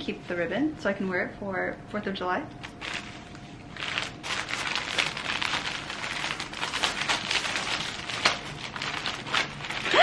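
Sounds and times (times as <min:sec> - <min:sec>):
gift wrapping paper rustling: 0:02.7 - 0:10.0.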